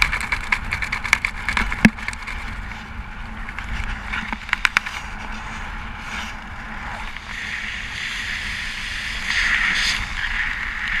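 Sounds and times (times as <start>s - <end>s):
wind noise on camera: 0.0s - 11.0s.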